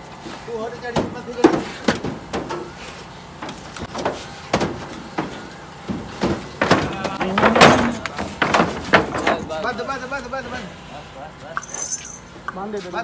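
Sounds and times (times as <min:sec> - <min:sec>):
hooves knocking on metal and wood: 0:03.4 - 0:09.7.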